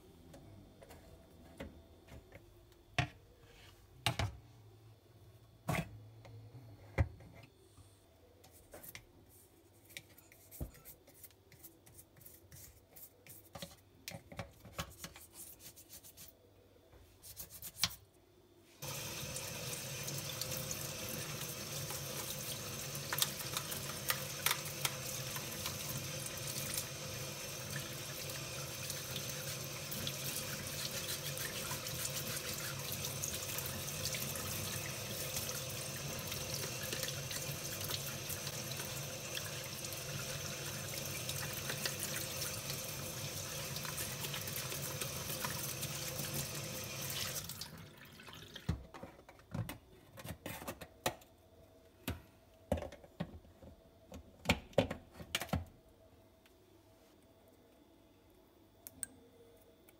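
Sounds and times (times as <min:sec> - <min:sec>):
tap water running into sink: 0:18.8 - 0:48.8.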